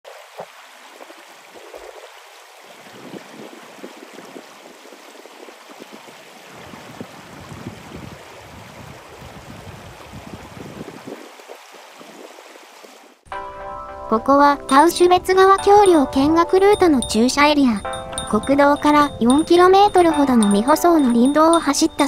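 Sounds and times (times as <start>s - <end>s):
stream babbling over gravel: 0.1s - 13.0s.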